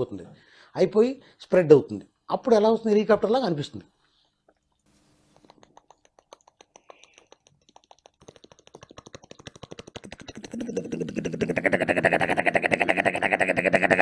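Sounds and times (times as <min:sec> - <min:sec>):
man imitating helicopter with mouth: 0:05.5 - 0:14.0.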